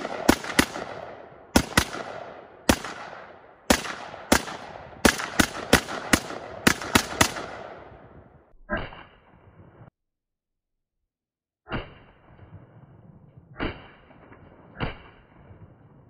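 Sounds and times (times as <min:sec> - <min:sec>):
rifle shots echoing: 0:00.0 - 0:08.2.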